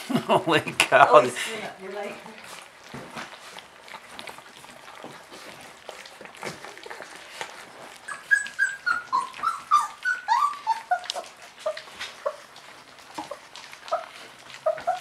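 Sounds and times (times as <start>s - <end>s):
puppies lapping and smacking: 0.0s - 15.0s
high puppy whimpers: 7.9s - 15.0s.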